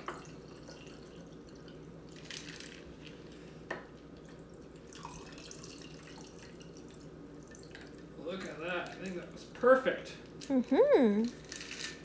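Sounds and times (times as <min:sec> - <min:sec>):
liquid trickling over ice: 0:00.0 - 0:03.0, 0:04.2 - 0:09.9.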